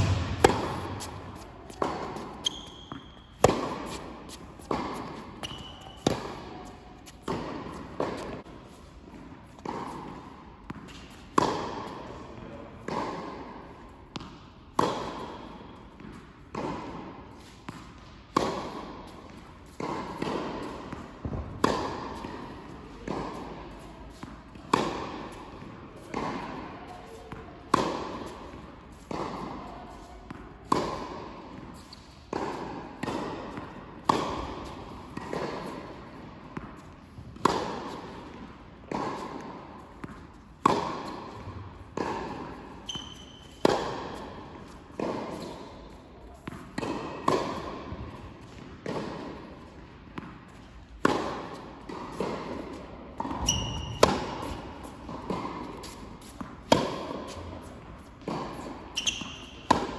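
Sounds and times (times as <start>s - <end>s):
tennis ball off racket strings: 0.0s - 8.4s
ball bouncing on hard court: 0.0s - 8.5s, 9.1s - 11.9s, 14.1s - 45.6s, 46.2s - 59.9s.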